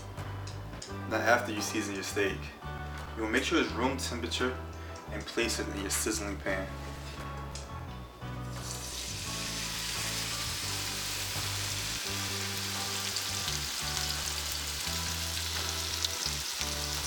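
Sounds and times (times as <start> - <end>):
steak sizzling in a pan: 8.5 - 17.0.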